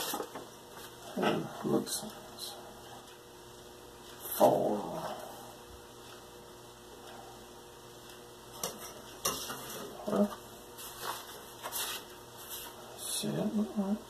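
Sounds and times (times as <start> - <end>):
paper rustling: 10.8 - 12.8.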